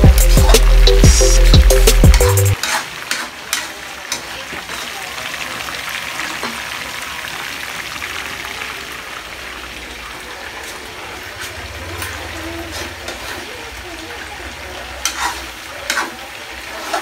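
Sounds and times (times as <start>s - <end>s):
chicken sizzling in hot oil: 0.0s - 17.0s.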